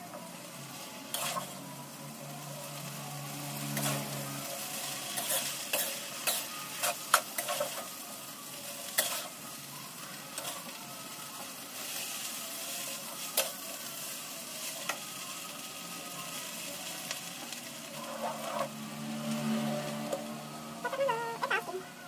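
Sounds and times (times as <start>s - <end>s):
noodles sizzling in a wok: 0.0s - 22.0s
metal spatula scraping a pan: 1.1s - 1.6s, 3.6s - 7.9s, 17.9s - 20.3s.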